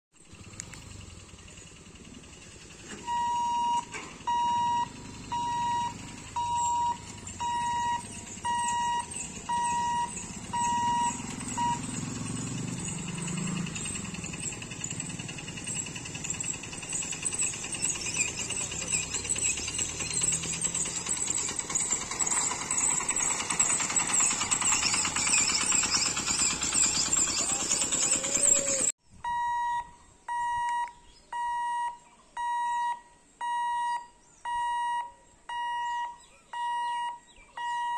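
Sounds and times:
vehicles driving past: 0:00.2 - 0:28.9
level-crossing warning beeps: 0:03.0 - 0:12.2, 0:29.2 - 0:37.9.

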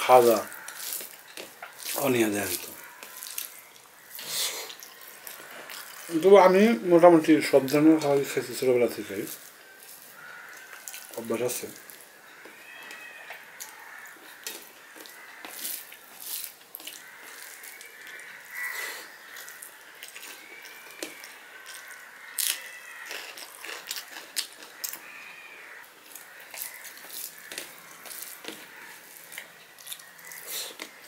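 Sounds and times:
fingers mixing rice on steel plate: 0:00.2 - 0:03.5
man chewing food: 0:00.4 - 0:06.2, 0:09.3 - 0:31.0.

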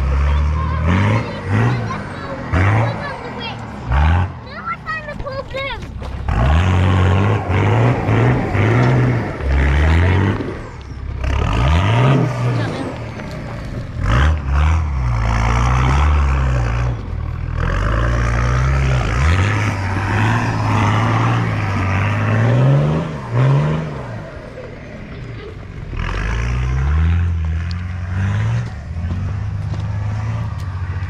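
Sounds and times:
diesel engine revving: 0:00.0 - 0:31.0
tyres scrabbling on gravel: 0:04.5 - 0:14.4.

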